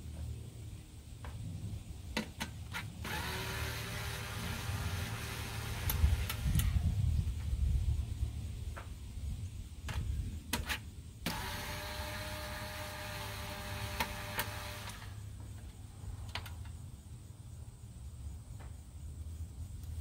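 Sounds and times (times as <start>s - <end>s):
cordless drill running: 3.0s - 6.8s, 11.2s - 15.2s.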